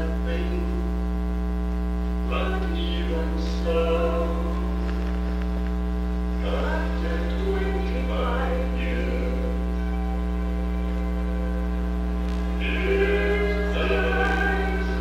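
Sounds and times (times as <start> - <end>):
person singing over loudspeakers: 0.0 - 0.9, 2.3 - 5.1, 6.4 - 10.2, 12.5 - 15.0
loud mains hum: 0.0 - 15.0.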